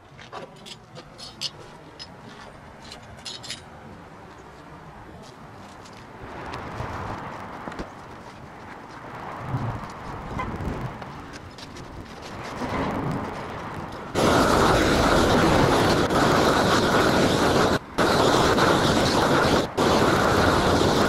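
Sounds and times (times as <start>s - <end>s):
roofing torch flame hissing: 13.4s - 21.0s.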